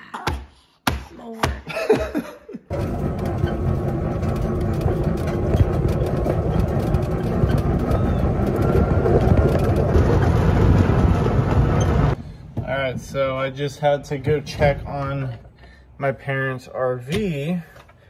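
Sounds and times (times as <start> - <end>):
vehicle engine and ride noise: 2.7 - 15.5.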